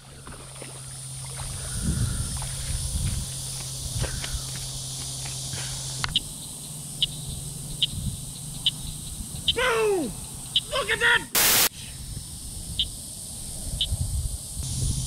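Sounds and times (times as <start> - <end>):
footsteps through wet grass: 0.0 - 6.4
high insect drone: 0.0 - 15.0.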